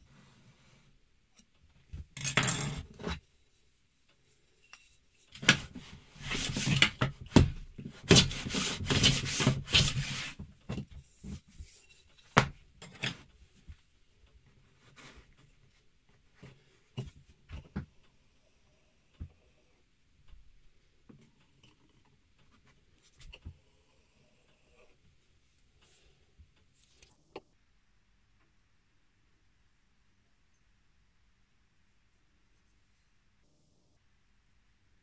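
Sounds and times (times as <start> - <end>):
wood scraping on workbench: 8.0 - 10.4.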